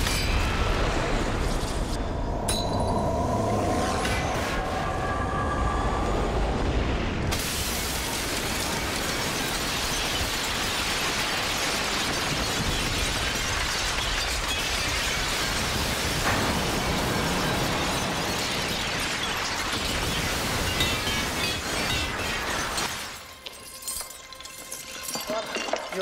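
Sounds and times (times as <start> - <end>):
glass breaking: 0.0 - 0.7, 7.3 - 26.0
crash of falling debris: 6.6 - 26.0.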